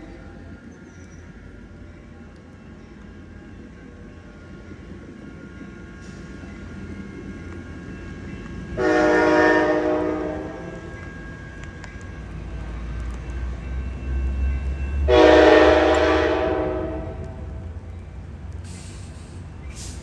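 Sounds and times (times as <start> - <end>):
train rumble: 0.0 - 20.0
train horn blasts: 8.8 - 10.9, 15.0 - 17.7.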